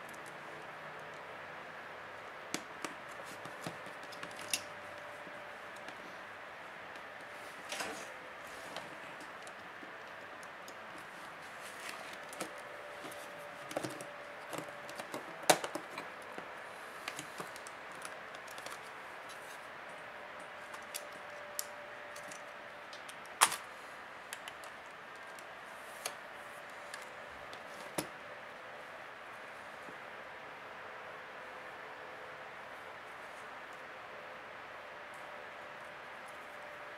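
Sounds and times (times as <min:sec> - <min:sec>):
plastic clips clicking and snapping: 0:13.7 - 0:16.4, 0:17.0 - 0:18.9, 0:20.7 - 0:23.7.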